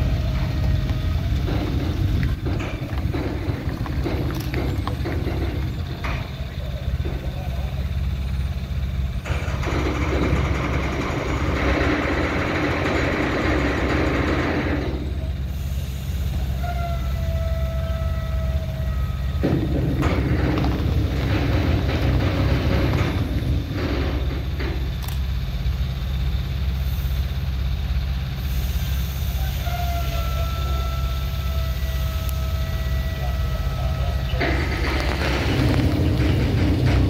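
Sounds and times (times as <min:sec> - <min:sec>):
truck diesel engine hum: 0:00.0 - 0:37.0
high squeal: 0:15.8 - 0:19.9, 0:29.1 - 0:35.8.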